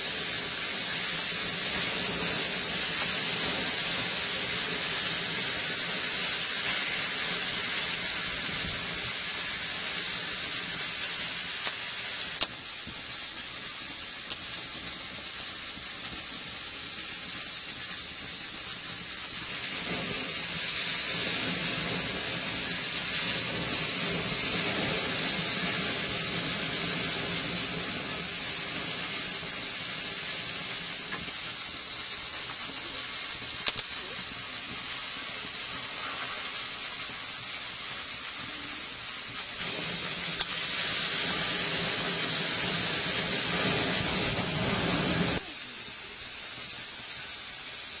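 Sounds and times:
patties sizzling on a grill: 0:00.0 - 0:48.0
sharp pops: 0:11.6 - 0:13.0, 0:32.4 - 0:36.7, 0:39.3 - 0:45.5.

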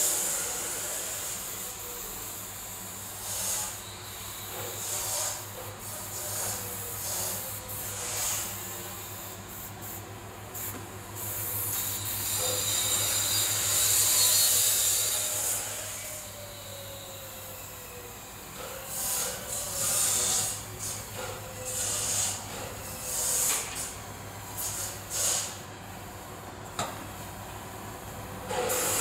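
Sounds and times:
spray gun air hiss: 0:04.5 - 0:15.6, 0:24.5 - 0:26.2.

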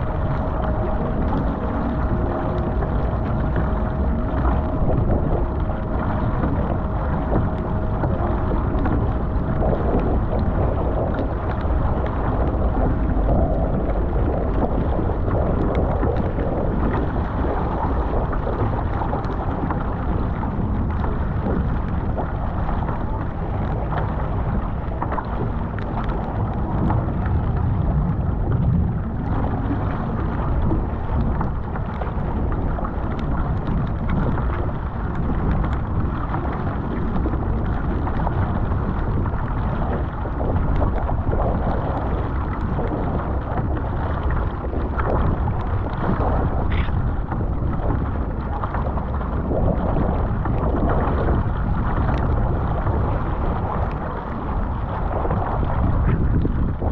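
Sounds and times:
water splashing against hull: 0:00.0 - 0:56.9
wind buffeting microphone: 0:00.0 - 0:56.9.

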